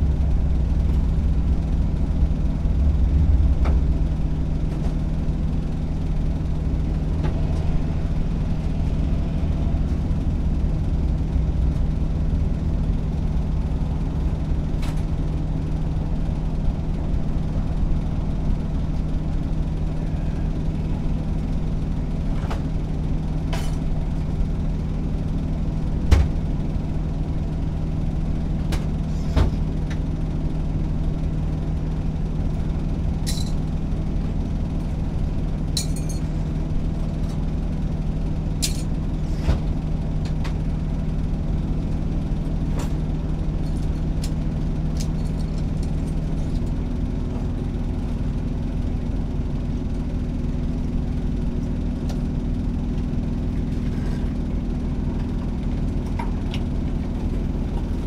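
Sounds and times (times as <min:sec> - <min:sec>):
truck engine idling: 0:00.0 - 0:58.0.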